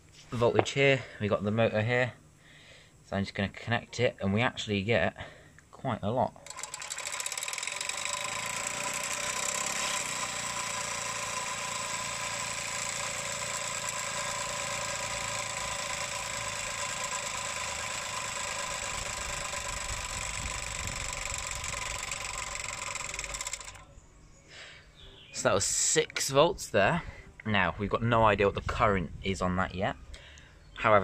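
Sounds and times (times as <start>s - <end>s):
small steam engine running: 6.4s - 23.9s.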